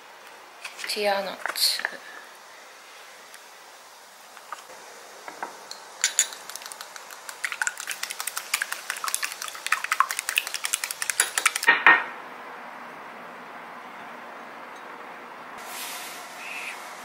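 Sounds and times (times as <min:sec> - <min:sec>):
utensil clinking against bowl: 0:05.7 - 0:11.7.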